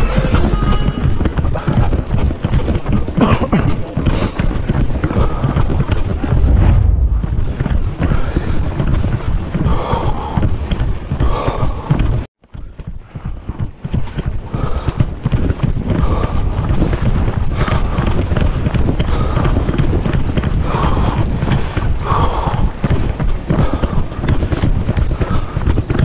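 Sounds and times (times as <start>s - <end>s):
low rumble: 0.0s - 3.0s, 6.0s - 11.1s
running footsteps on asphalt: 0.9s - 26.0s.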